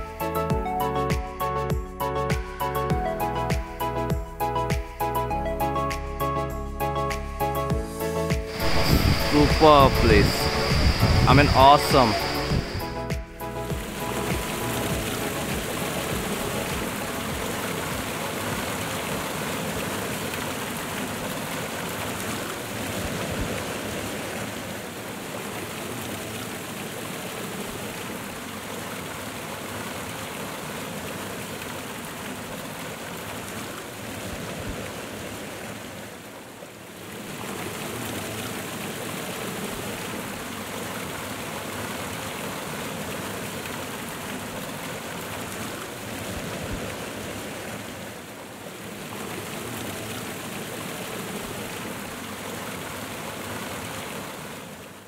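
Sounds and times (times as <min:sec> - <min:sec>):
waterfall rushing over rocks: 0:07.9 - 0:55.0.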